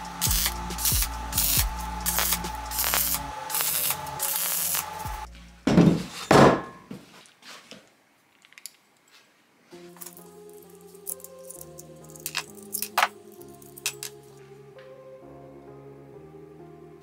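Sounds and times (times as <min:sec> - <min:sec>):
welder arc crackling and hissing: 0:00.0 - 0:05.3.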